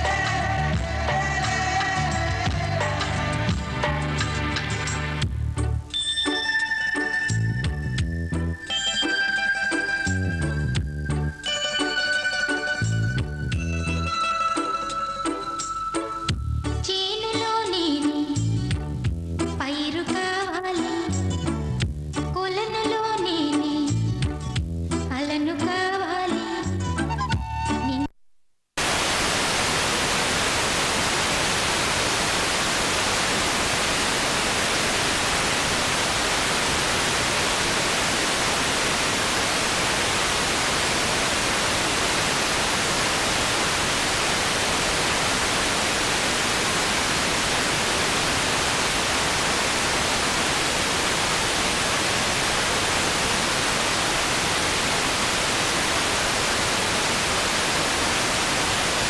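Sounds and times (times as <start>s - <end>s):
static hiss: 0.0s - 6.0s, 28.8s - 59.0s.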